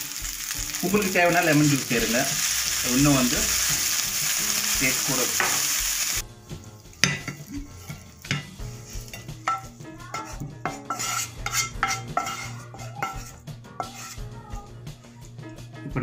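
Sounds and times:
spatula scraping frying pan: 6.9 - 14.3.

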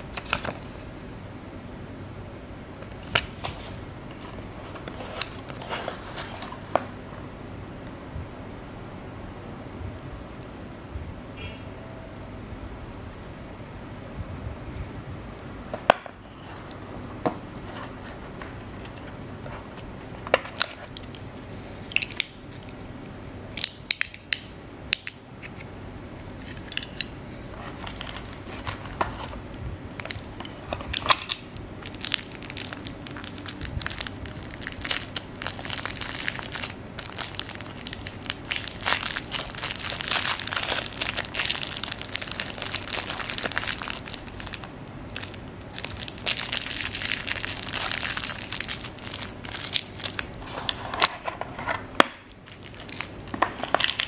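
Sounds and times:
plastic packaging crinkling: 0.0 - 0.8, 2.9 - 7.0, 26.4 - 54.0.

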